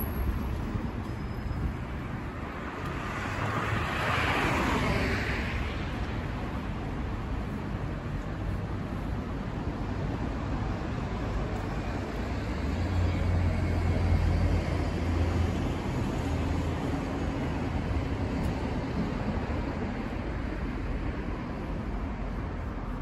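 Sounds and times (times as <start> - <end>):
road traffic noise: 0.0 - 23.0.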